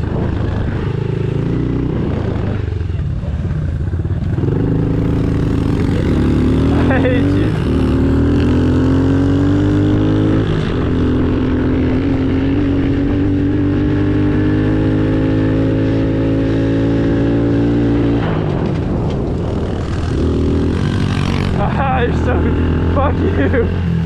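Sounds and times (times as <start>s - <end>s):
small motorcycle engine revving: 4.2s - 24.0s.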